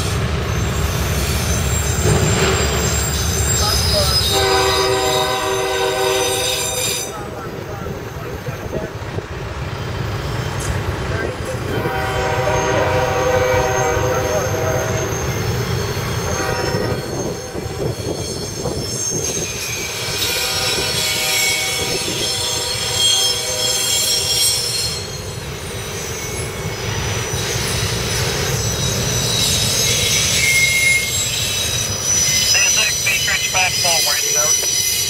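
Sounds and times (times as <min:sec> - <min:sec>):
freight train wheels rumbling: 0:00.0 - 0:35.0.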